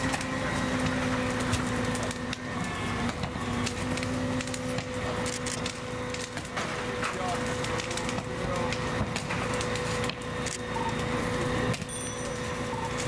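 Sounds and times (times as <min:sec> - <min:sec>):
burning house crackling: 0:00.0 - 0:13.0
fire engine droning: 0:00.0 - 0:13.0.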